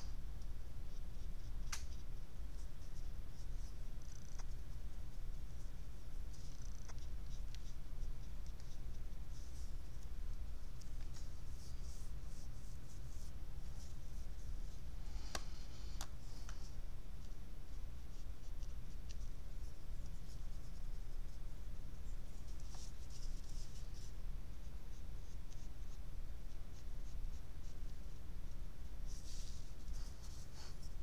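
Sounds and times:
steady low hum: 0.0 - 31.0
paintbrush scratching on paper: 0.8 - 14.9, 16.3 - 31.0.

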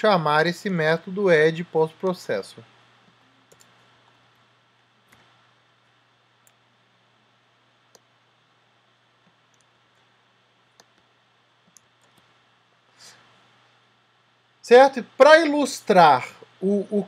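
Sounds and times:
faint steady hum: 0.0 - 17.0
keyboard and mouse clicks: 3.0 - 3.8, 5.1 - 5.4, 9.2 - 10.1, 10.7 - 12.3.

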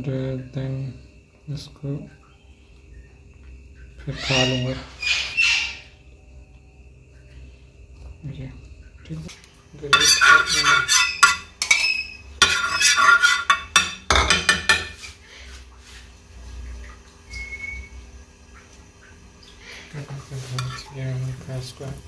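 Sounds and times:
dishes and cookware clattering: 9.9 - 15.2, 20.5 - 21.0.

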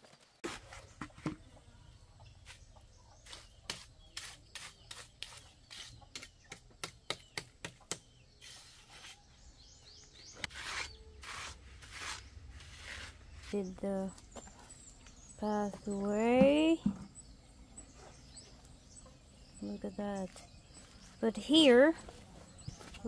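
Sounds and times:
trowel scraping wet cement: 3.2 - 6.3, 10.4 - 13.7.

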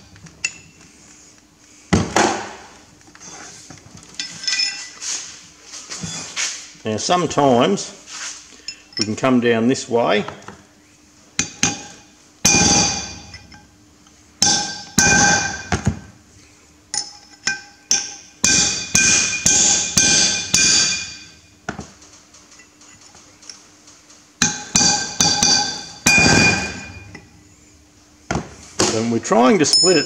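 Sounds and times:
hammer striking chisel on steel: 24.4 - 27.1.

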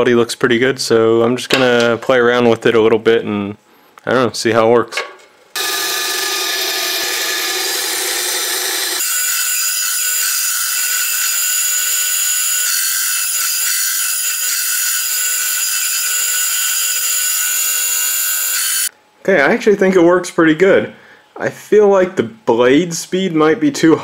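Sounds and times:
bandsaw whining: 5.6 - 18.9
blade cutting plywood: 5.6 - 18.9.

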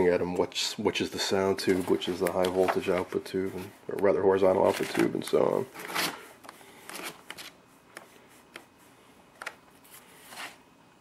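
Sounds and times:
paper pages flipping: 1.6 - 6.2, 6.8 - 8.7.

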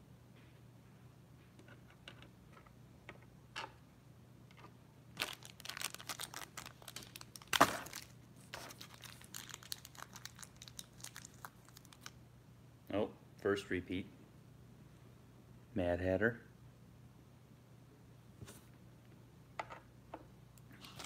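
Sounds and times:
packet crinkling and tearing: 5.2 - 12.2.

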